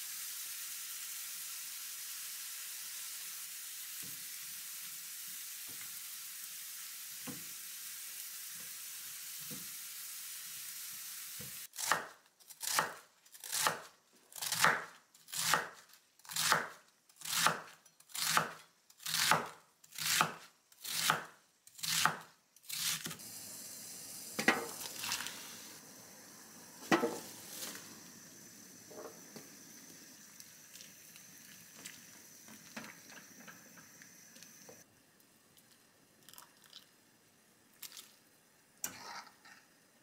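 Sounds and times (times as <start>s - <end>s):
hiss of blanching in a pan: 0.0s - 11.7s, 22.7s - 34.9s
knife chopping on wooden board: 11.8s - 15.7s, 16.4s - 16.7s.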